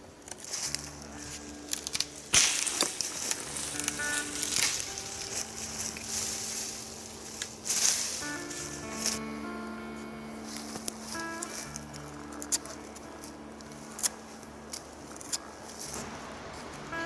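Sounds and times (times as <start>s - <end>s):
background music with held tones: 0.0s - 17.0s
rustling noise: 0.3s - 17.0s
sapling stem snapping: 1.7s - 6.3s.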